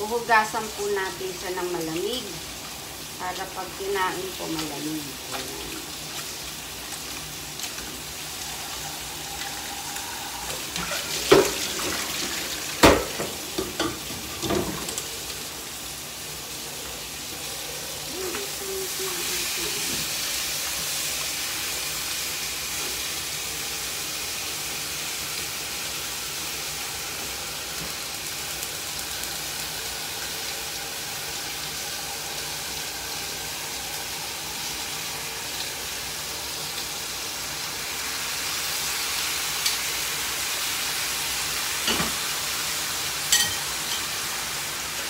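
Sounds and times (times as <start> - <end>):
tap water running into colander: 0.4 - 15.8.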